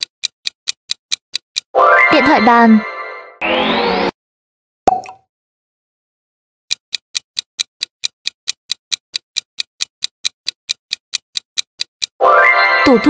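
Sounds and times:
timer ticking: 0:00.0 - 0:02.4, 0:06.7 - 0:13.0.

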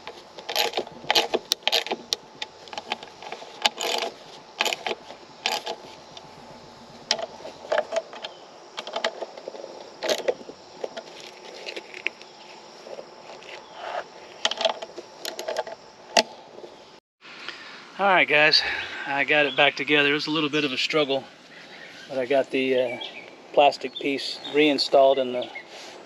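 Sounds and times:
loose metal parts rattling: 0:00.0 - 0:06.3, 0:07.0 - 0:12.2, 0:12.8 - 0:16.7.

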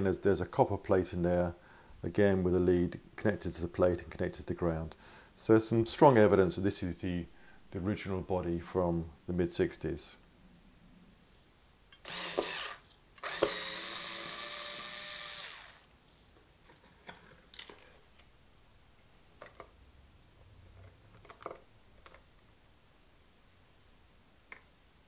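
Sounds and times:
cordless screwdriver motor whine: 0:12.0 - 0:15.9.

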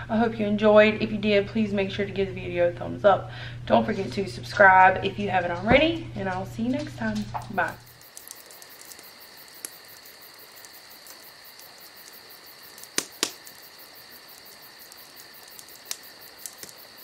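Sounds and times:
insect trilling: 0:07.4 - 0:17.0
sharp clicks: 0:07.7 - 0:17.0.

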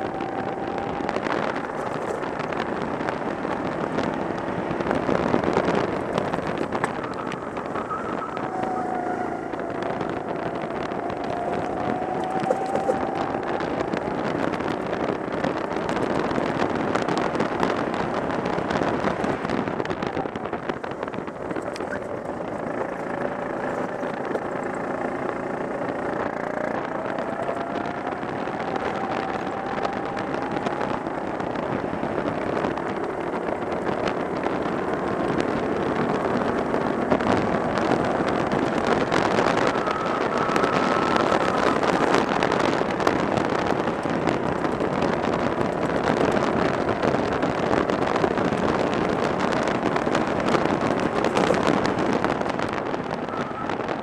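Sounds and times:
go-kart engine at speed: 0:00.0 - 0:54.0.

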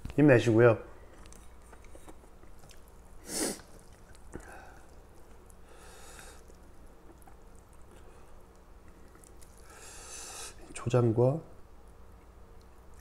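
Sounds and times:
breath through the nose: 0:03.2 - 0:03.7, 0:09.6 - 0:10.6.

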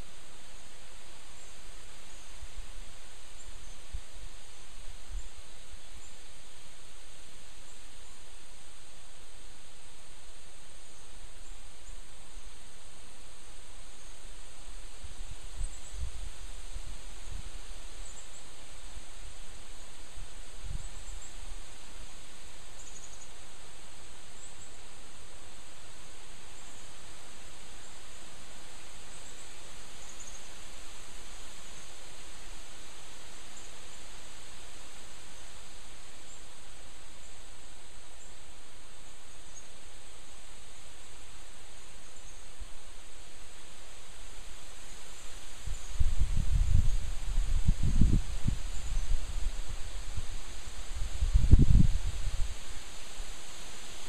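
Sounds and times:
wind rustling through pines: 0:00.0 - 0:54.0
wind gusts rumbling on microphone: 0:45.6 - 0:53.4.

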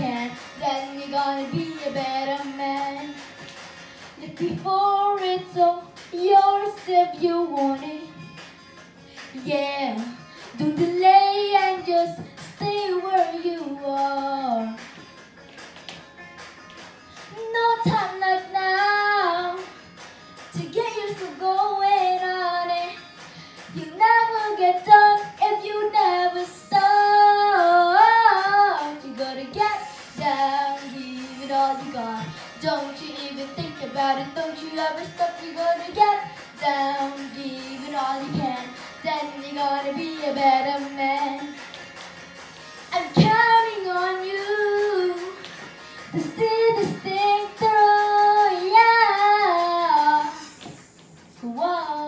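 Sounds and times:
backing track with a beat: 0:00.0 - 0:52.0
boy singing into a microphone: 0:04.2 - 0:08.0.

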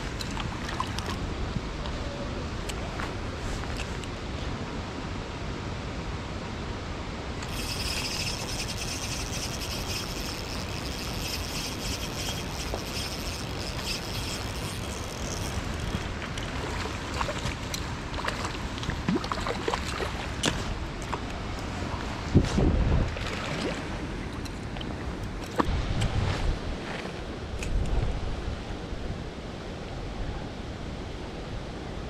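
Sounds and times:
river water rushing: 0:07.2 - 0:22.3
high whirring hiss: 0:07.4 - 0:16.0
small ticks and knocks: 0:07.4 - 0:16.5.

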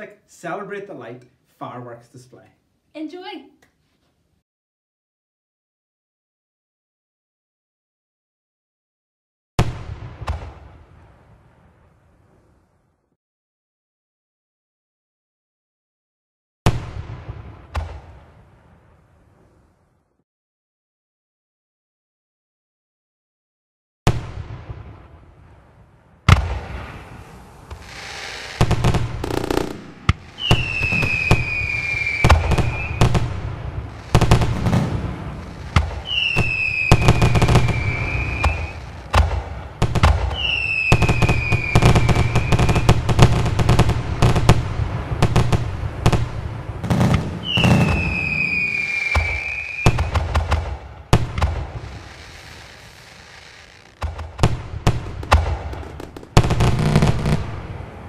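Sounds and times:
fireworks bangs and crackles: 0:09.6 - 0:12.8, 0:16.7 - 0:19.9, 0:24.1 - 0:58.0
whistling fireworks: 0:24.1 - 0:58.0.

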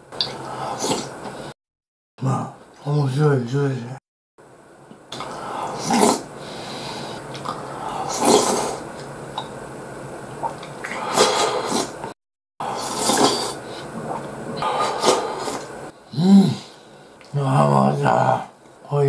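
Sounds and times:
person slurping soup: 0:00.3 - 0:01.1, 0:05.2 - 0:08.8, 0:10.4 - 0:16.6.

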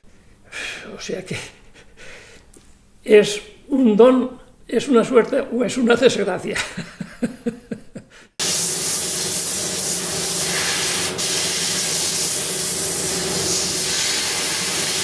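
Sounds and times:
gas torch hissing: 0:08.4 - 0:15.0.

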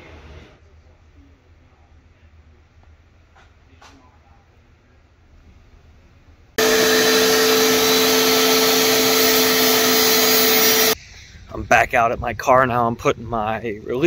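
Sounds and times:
shop vacuum running: 0:06.6 - 0:11.0.

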